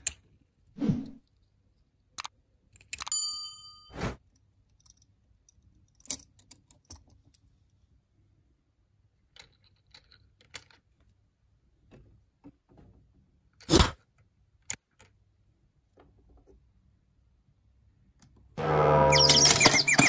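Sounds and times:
plastic toy pieces clicking: 2.2s - 3.1s.

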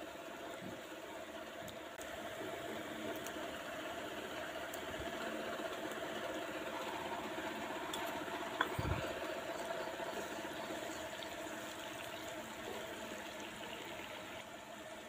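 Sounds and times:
onions sizzling in oil: 5.8s - 15.0s.

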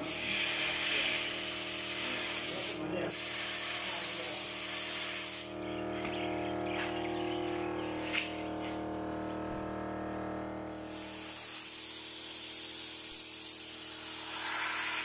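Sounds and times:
paint spray gun hissing: 0.0s - 5.6s, 10.7s - 15.0s
steady hum: 0.0s - 15.0s.

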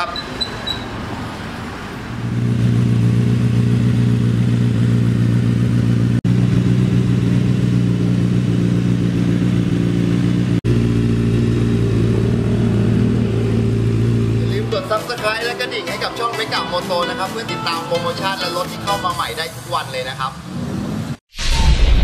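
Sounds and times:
motorcycle engine idling: 2.2s - 15.0s.

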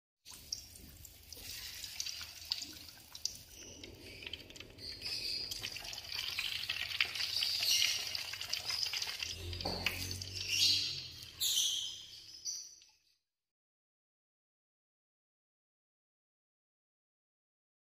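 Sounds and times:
food deep-frying in oil: 0.3s - 12.6s.

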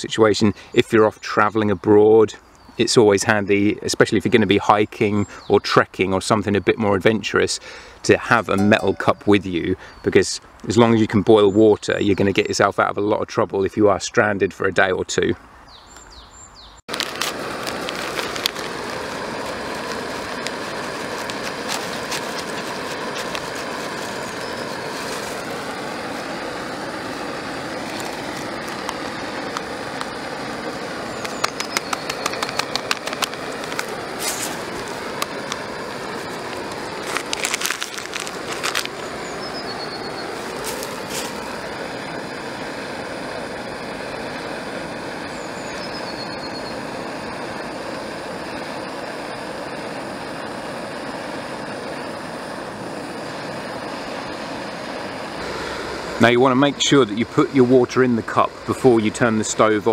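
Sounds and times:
gas stove flame rushing: 16.9s - 59.9s
sharp clicks and rattles: 31.2s - 35.6s.

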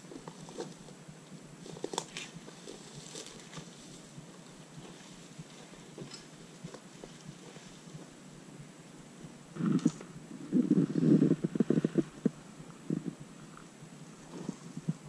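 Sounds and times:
bicycle dragged through dry brush: 0.0s - 8.2s.

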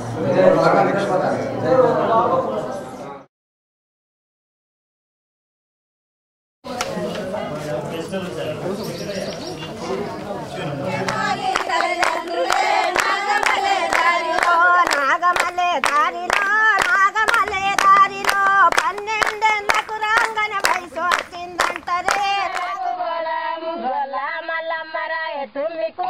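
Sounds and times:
hands clapping a beat: 6.8s - 7.3s, 11.0s - 22.8s
women singing together: 10.6s - 26.0s.

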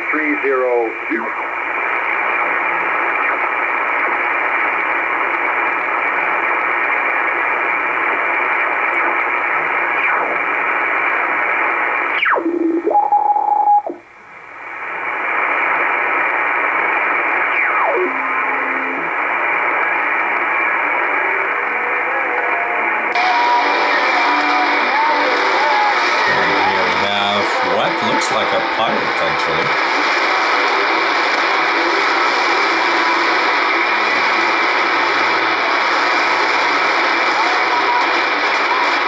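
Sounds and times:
radio static hiss: 0.0s - 39.0s
short steady radio tone: 0.0s - 39.0s
falling radio whistles: 9.7s - 14.0s, 15.3s - 21.5s.

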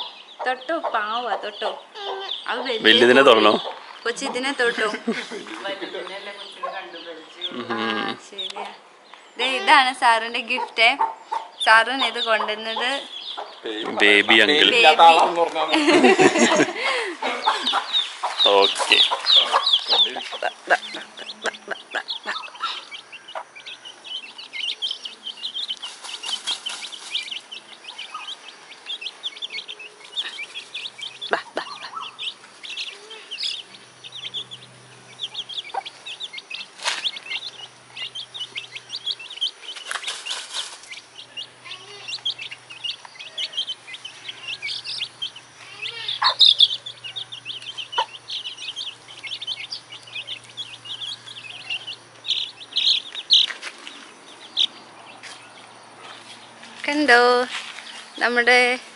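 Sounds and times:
chicks peeping: 0.0s - 58.9s
hen clucking softly: 10.5s - 14.5s, 17.2s - 23.9s, 27.5s - 39.5s, 41.8s - 53.4s.

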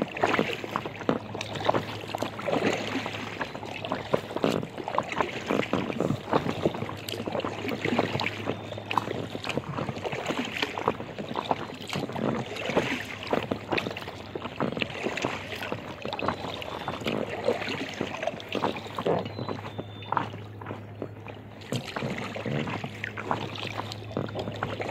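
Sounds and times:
water splashing against kayak hull: 0.0s - 24.9s.

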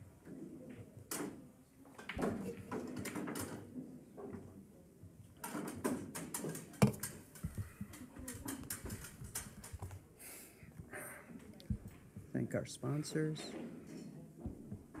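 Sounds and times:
pool balls clacking together: 5.6s - 7.3s.

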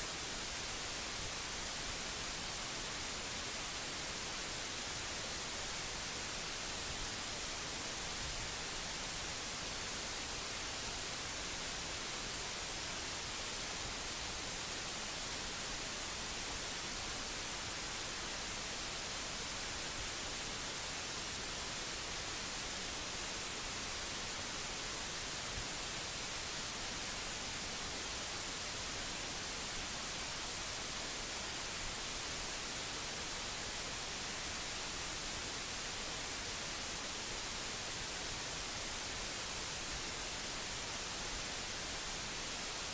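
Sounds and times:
steady microphone hiss: 0.0s - 42.9s.

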